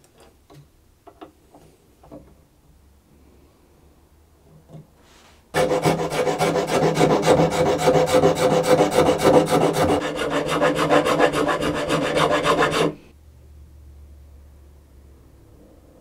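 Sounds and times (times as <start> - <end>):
metal file rasping: 5.6 - 13.0.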